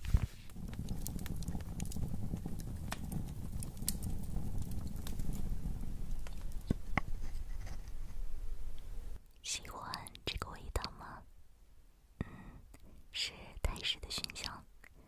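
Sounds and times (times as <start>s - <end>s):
match flame crackling: 0.0s - 9.2s.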